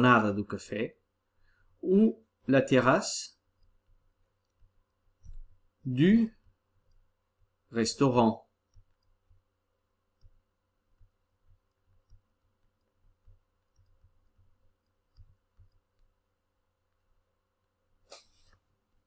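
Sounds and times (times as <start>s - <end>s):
stylus tapping on tablet: 8.6s - 16.2s.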